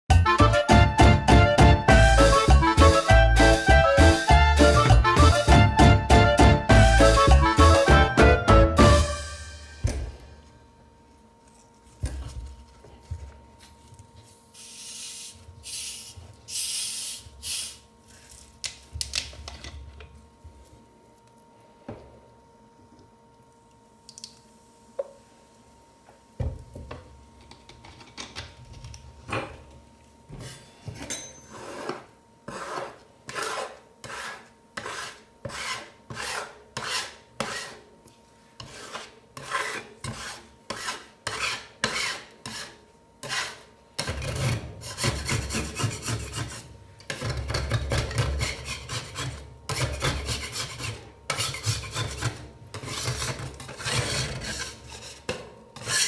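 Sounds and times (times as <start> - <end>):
metal spatulas scraping cold plate: 38.6 - 56.0.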